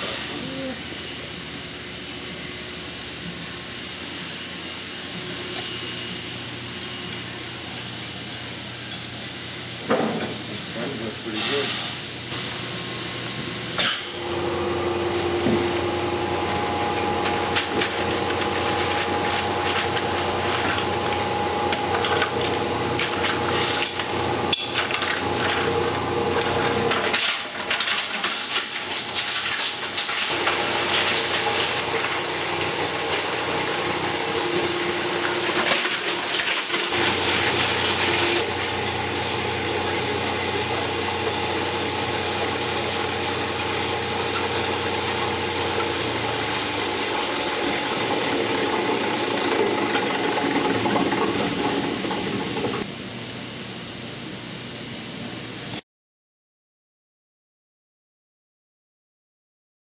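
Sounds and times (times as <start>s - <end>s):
steady drive hum: 0.0s - 27.8s, 30.0s - 55.8s
plastic pieces clattering in granulator: 26.8s - 38.5s, 46.8s - 52.8s.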